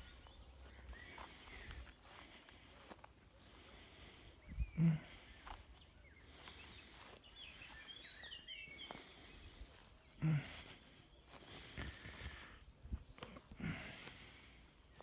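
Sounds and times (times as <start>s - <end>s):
outdoor garden ambience: 0.0s - 15.0s
small bird chirping: 4.4s - 10.3s.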